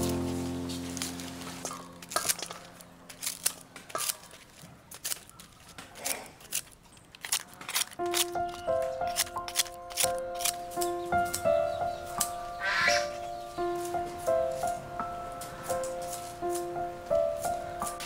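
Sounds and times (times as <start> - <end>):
music: 0.0 - 2.2, 8.0 - 18.0
scissors snipping leaves: 1.7 - 12.4, 15.4 - 16.7.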